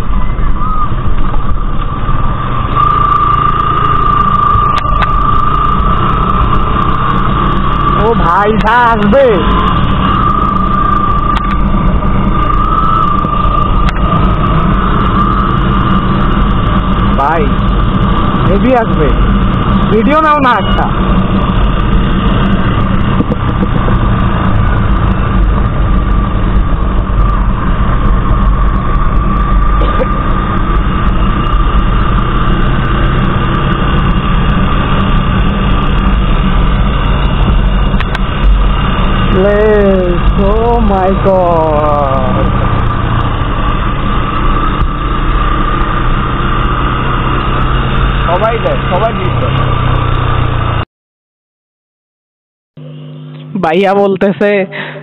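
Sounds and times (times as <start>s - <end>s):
wind on microphone: 0.0s - 20.0s, 20.8s - 46.4s
high whine: 0.0s - 50.8s, 52.8s - 55.0s
motorcycle engine running: 0.0s - 50.8s.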